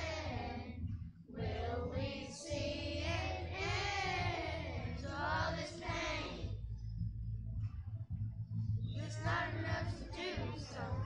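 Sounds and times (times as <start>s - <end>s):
children's choir singing: 0.0s - 6.6s, 9.0s - 11.0s.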